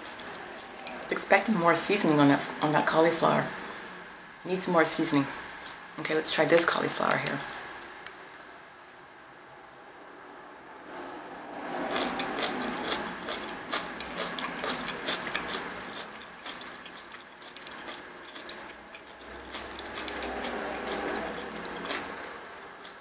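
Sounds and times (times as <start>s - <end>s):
chewing crunchy food: 0.0s - 1.6s, 11.6s - 23.0s
wet mouth clicks: 11.9s - 22.3s.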